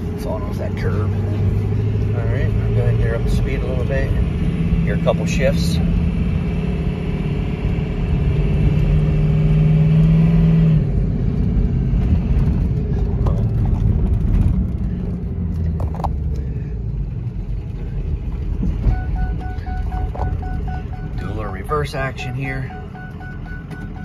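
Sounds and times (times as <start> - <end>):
diesel truck engine droning: 0.0 - 24.0
transmission upshifting: 18.4 - 24.0.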